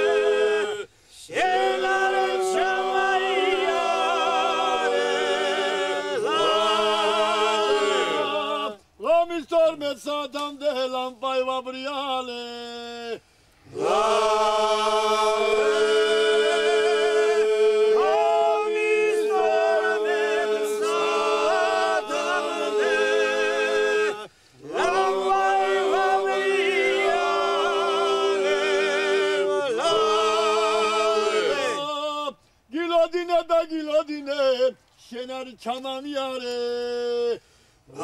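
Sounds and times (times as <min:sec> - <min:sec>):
men singing a cappella: 0:00.0 - 0:09.1, 0:10.4 - 0:38.0.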